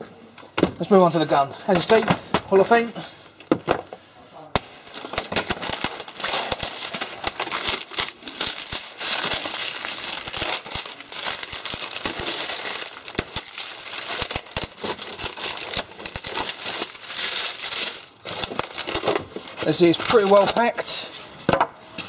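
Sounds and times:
plastic packaging crinkling: 0:04.6 - 0:21.0.

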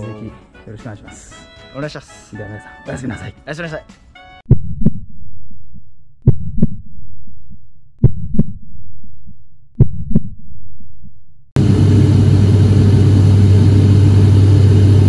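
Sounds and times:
heartbeat thumps: 0:04.5 - 0:05.2, 0:06.2 - 0:06.9, 0:08.0 - 0:08.7, 0:09.8 - 0:10.4
low rumble: 0:04.5 - 0:15.0.

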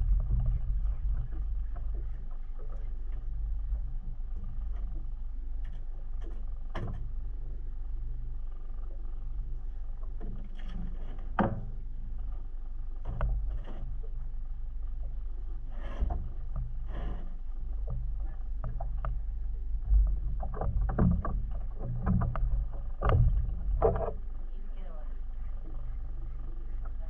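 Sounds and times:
reel and hull knocks: 0:00.0 - 0:07.2, 0:10.0 - 0:12.4, 0:13.0 - 0:14.3, 0:14.9 - 0:27.0
water and wind rumble: 0:00.0 - 0:27.0
low thump: 0:19.8 - 0:24.2.

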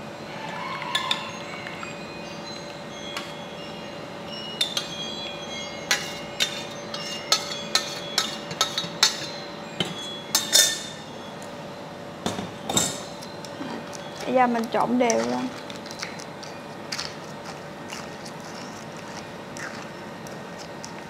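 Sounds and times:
metal pot clinking against bowl: 0:04.6 - 0:05.0, 0:05.8 - 0:11.0.

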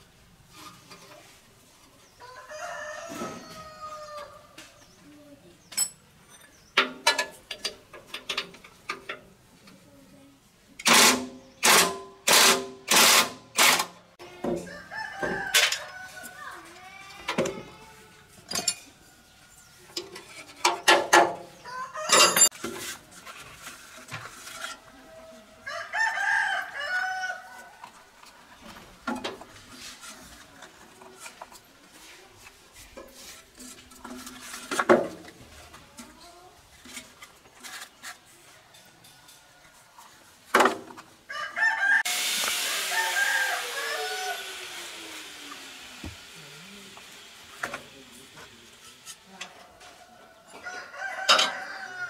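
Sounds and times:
roosters crowing: 0:02.2 - 0:04.8, 0:13.3 - 0:19.9, 0:21.4 - 0:22.6, 0:24.8 - 0:28.1, 0:41.2 - 0:45.4, 0:49.6 - 0:52.0
loud falling hiss: 0:42.1 - 0:47.8.

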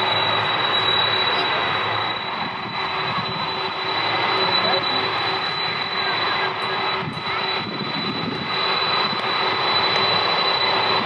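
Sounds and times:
jet engines rushing and whining: 0:00.0 - 0:11.0.

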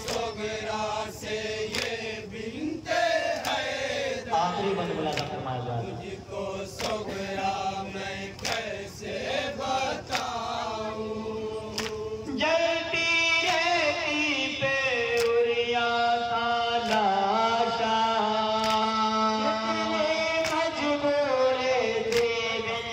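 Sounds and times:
men chanting through microphone: 0:00.0 - 0:22.9
chest-beating slaps: 0:04.9 - 0:05.4, 0:11.7 - 0:12.0.

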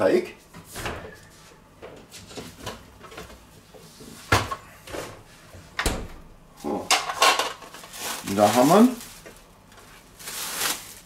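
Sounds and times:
plastic film rustling: 0:07.2 - 0:11.0.

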